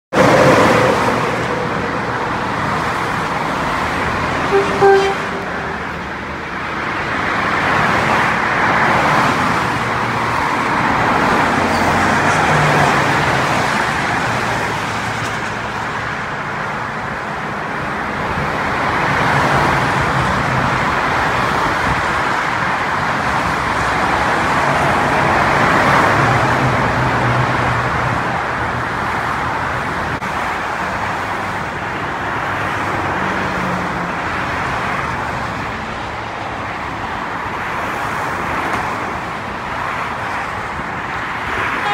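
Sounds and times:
highway traffic: 0.0 - 41.9
diesel train engine hum: 0.1 - 41.9
horn toot: 4.5 - 6.1.

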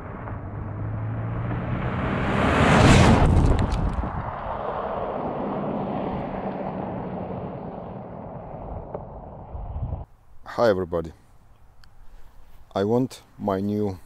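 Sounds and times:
car driving fast on gravel: 0.0 - 10.0.

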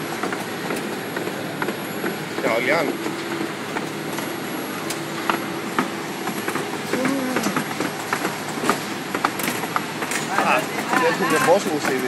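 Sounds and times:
factory machinery hum: 0.0 - 12.0
machine clicks and knocks: 5.3 - 12.0.

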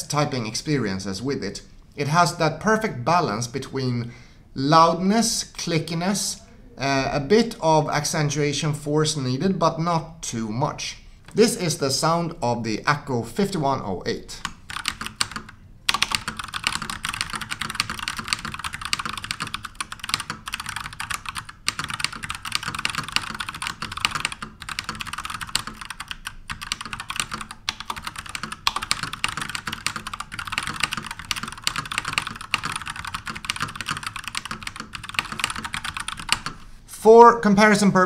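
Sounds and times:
mechanical keyboard typing: 14.4 - 36.6.

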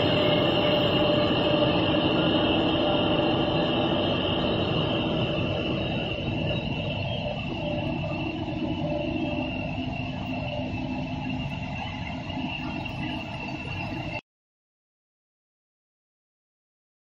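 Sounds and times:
high whine: 0.0 - 14.2
machine hum: 0.0 - 14.2.

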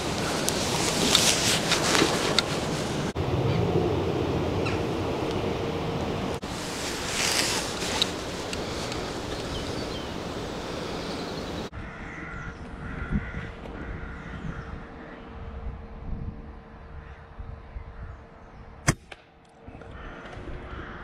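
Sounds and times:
wind noise on microphone: 0.0 - 19.0
rooks cawing: 7.2 - 15.2, 19.7 - 21.0.

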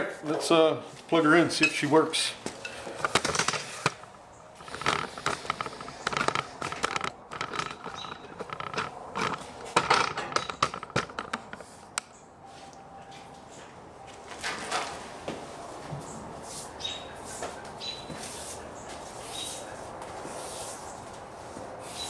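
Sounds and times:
camera handling knocks and scrapes: 2.9 - 11.7.

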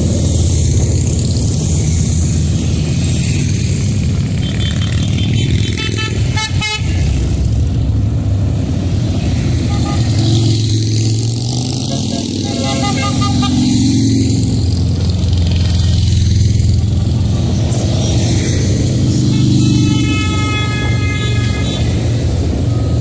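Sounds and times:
motorcycles riding past: 0.0 - 23.0
horn honking: 4.4 - 7.0, 9.6 - 10.5, 11.7 - 14.0, 19.2 - 22.8.

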